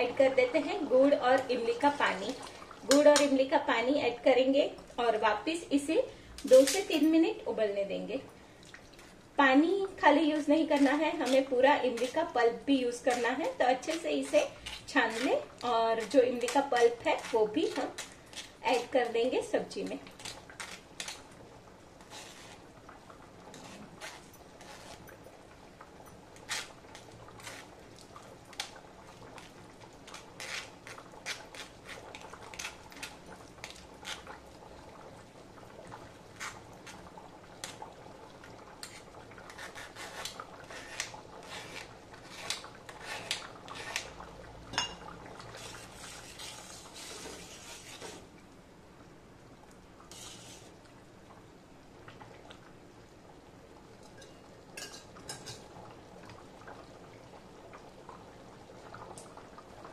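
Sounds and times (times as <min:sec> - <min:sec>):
spoon scraping metal strainer: 0:44.8 - 0:48.2, 0:50.1 - 0:50.8.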